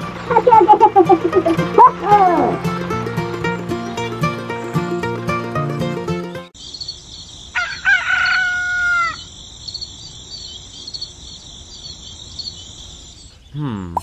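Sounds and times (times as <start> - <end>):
insects chirping: 0.0 - 5.2, 6.6 - 14.0
rooster crowing: 7.5 - 9.8.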